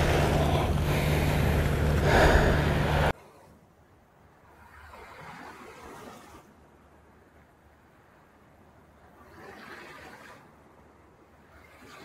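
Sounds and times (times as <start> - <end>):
sea surf: 0.0 - 3.5, 9.0 - 10.6.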